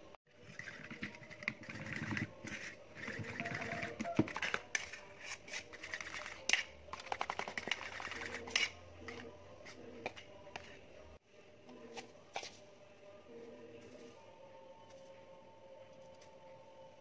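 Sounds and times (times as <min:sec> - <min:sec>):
fork beating batter in bowl: 0:00.3 - 0:10.8.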